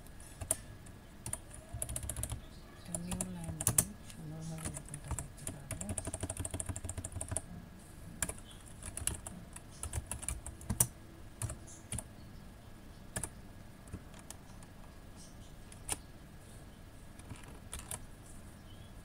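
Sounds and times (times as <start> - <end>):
computer keyboard typing: 0.2 - 7.5, 8.2 - 12.1, 13.1 - 14.7, 15.7 - 16.0, 17.2 - 18.0.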